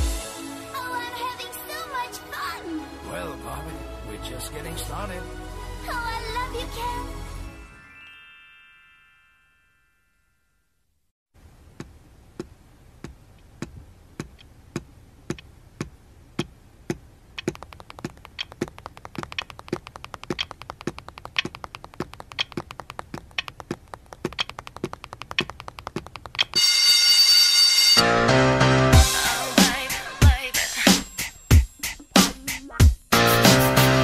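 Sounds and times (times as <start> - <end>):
pop backing music: 0.0 - 7.1, 27.9 - 34.0
ticking beat: 14.2 - 26.7, 28.8 - 34.0.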